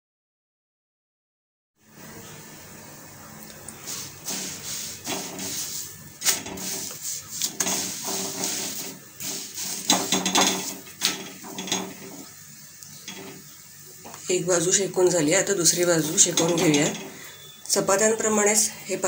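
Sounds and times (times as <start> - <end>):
spatula scraping and tapping griddle: 3.9 - 12.3, 13.0 - 13.5, 15.8 - 17.4.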